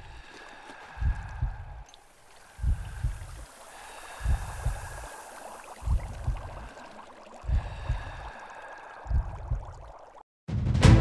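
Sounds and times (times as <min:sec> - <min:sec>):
deep heartbeat thumps: 0:01.0 - 0:01.8, 0:02.6 - 0:03.4, 0:04.2 - 0:05.0, 0:05.8 - 0:06.6, 0:07.5 - 0:08.2, 0:09.1 - 0:09.8
bubbling water hiss: 0:01.8 - 0:10.2.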